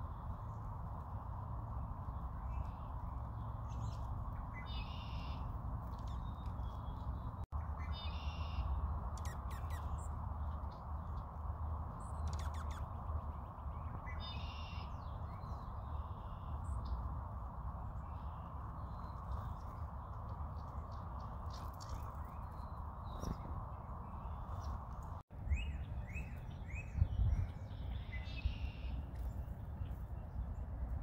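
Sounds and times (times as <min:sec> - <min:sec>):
low rushing background: 0:00.0 - 0:31.0
songbird nasal calls: 0:04.6 - 0:05.5.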